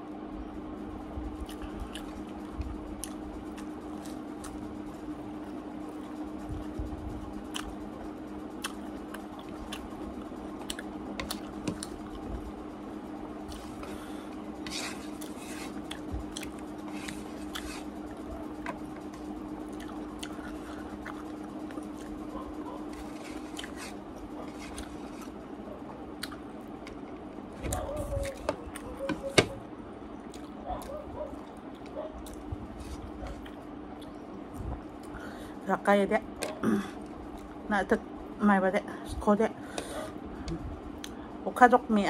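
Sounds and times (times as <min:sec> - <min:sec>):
steady low hum: 0:00.0 - 0:42.0
person chewing: 0:01.4 - 0:02.4, 0:03.0 - 0:04.6, 0:07.5 - 0:07.8, 0:08.6 - 0:12.4, 0:13.4 - 0:29.3, 0:30.2 - 0:35.2.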